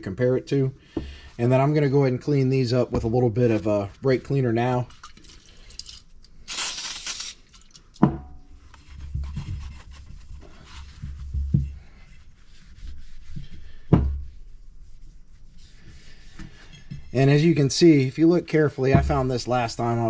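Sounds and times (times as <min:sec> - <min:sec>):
towel wiping metal: 0:09.4 - 0:16.4.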